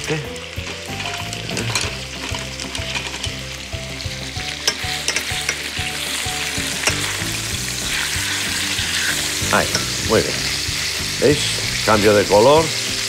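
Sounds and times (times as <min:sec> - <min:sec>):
chicken sizzling in hot oil: 0:00.0 - 0:13.0
spatula and fork scraping pan: 0:04.5 - 0:11.1.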